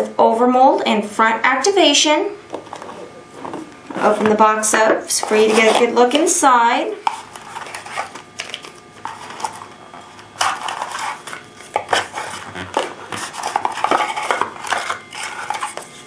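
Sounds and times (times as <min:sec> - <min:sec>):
cardboard and paper rustling: 0:07.0 - 0:09.7, 0:10.4 - 0:16.0.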